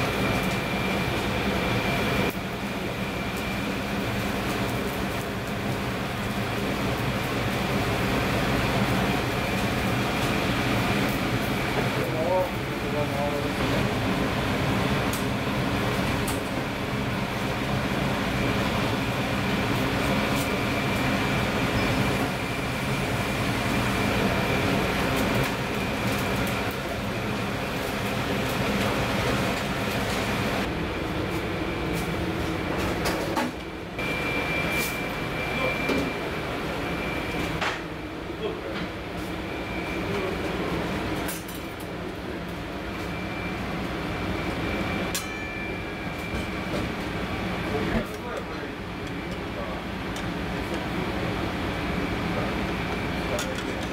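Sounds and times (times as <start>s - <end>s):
stove burner rumble: 0.0s - 34.1s, 43.8s - 53.9s
faint high whine: 34.0s - 37.4s.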